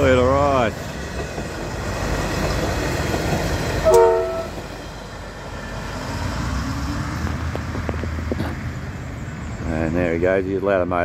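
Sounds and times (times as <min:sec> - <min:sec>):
diesel railcar passing on track: 0:00.0 - 0:11.0
multi-tone train horn toot: 0:03.8 - 0:04.6.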